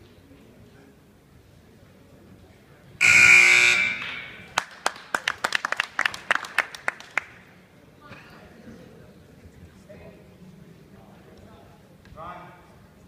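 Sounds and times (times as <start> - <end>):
scoreboard buzzer: 3.0 - 4.6
people clapping: 4.0 - 7.4.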